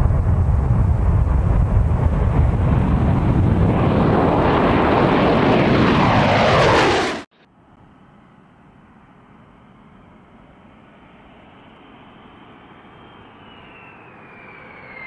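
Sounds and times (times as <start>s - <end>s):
jet engines rumbling overhead: 0.0s - 15.0s.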